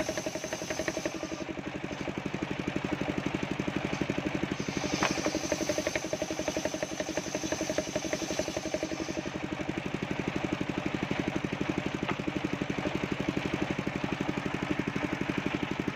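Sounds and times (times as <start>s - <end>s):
saw blade cutting wood whine: 0.0s - 1.6s, 4.4s - 9.7s
saw engine pulsing: 0.0s - 2.2s, 4.0s - 15.2s.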